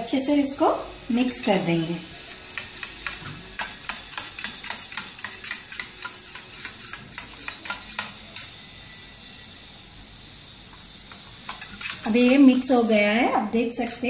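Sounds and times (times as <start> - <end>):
metal spoon clinking steel bowl: 2.5 - 8.5, 11.1 - 12.7.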